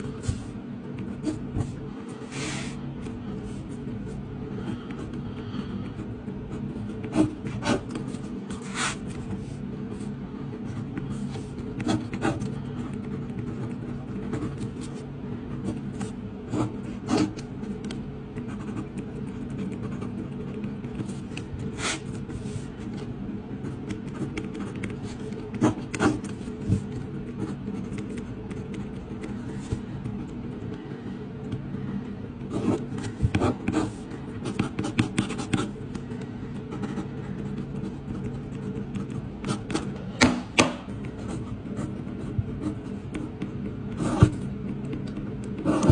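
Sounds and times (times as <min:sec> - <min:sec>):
steady low hum: 0:00.0 - 0:45.9
pen scratching on paper: 0:01.2 - 0:02.8, 0:04.7 - 0:10.1, 0:10.7 - 0:15.0, 0:15.6 - 0:17.4, 0:18.4 - 0:22.7, 0:23.6 - 0:29.9, 0:32.5 - 0:35.8, 0:36.7 - 0:39.9, 0:41.0 - 0:44.4, 0:45.6 - 0:45.9.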